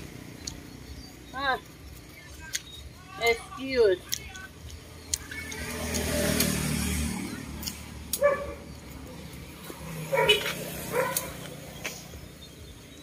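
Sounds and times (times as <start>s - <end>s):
vehicle passing: 0.0s - 13.0s
sharp clicks: 0.3s - 1.0s, 1.6s - 2.9s, 4.0s - 6.7s, 7.6s - 8.3s.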